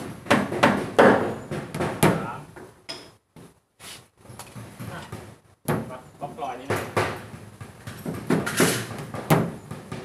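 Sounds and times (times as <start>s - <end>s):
faint knocks and bumps: 4.3s - 10.0s.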